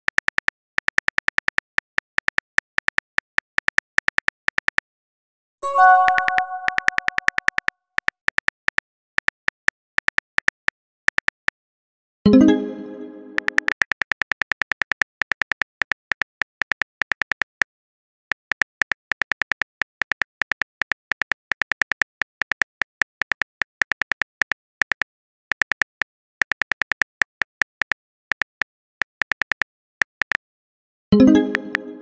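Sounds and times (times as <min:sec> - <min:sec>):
phone keyboard typing clicks: 0:05.6 - 0:11.4, 0:13.4 - 0:17.6.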